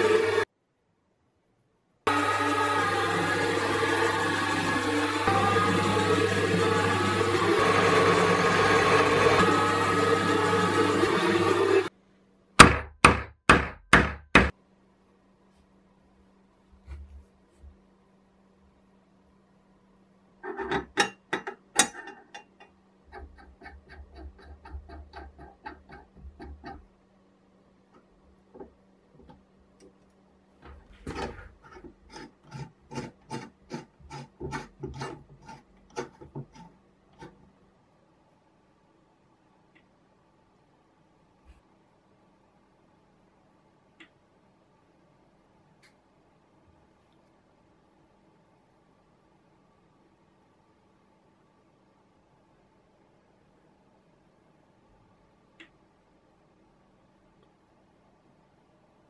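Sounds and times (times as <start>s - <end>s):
drill press motor running: 0.0s - 0.4s, 2.1s - 11.9s
brass cap scraping on threaded shaft: 31.1s - 37.4s.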